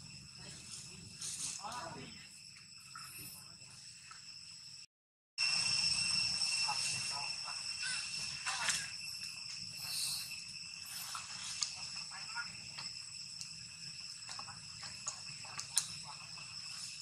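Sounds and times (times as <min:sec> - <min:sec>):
insects droning: 0:00.0 - 0:17.0
rustling in dry leaves: 0:00.4 - 0:01.7.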